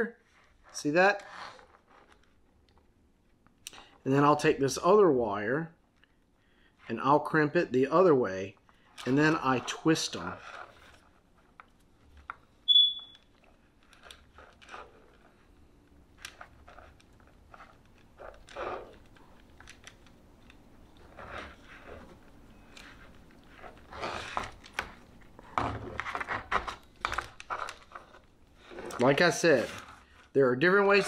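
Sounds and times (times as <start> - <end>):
wires and connectors rustling: 0.0 - 4.0, 7.9 - 31.0
short high beep: 12.7 - 13.2.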